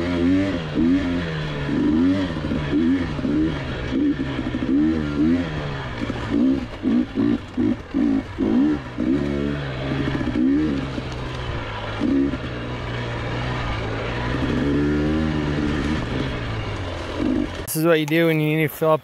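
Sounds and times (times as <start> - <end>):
two-stroke dirt bike engine revving: 0.0 - 18.6.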